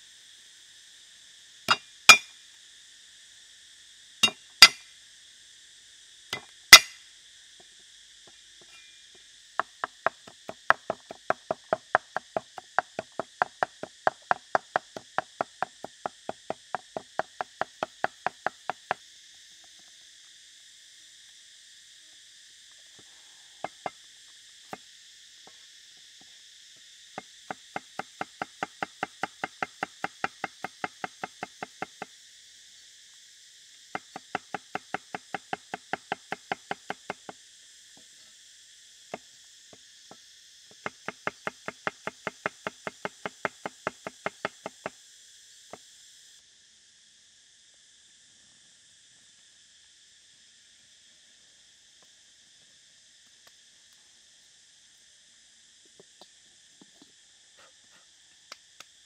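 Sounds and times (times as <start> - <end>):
insect buzzing: 0.0 - 59.0
cleaver chopping on wooden block: 1.7 - 2.2, 4.2 - 4.8, 6.7 - 7.0, 40.8 - 44.9.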